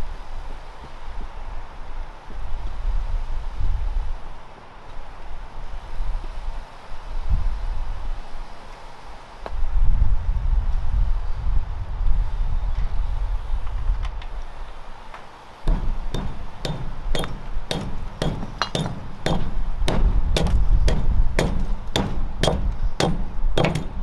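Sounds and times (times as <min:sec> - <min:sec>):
hatchet chopping wood: 0:15.7 - 0:24.0
low rumble: 0:15.7 - 0:24.0.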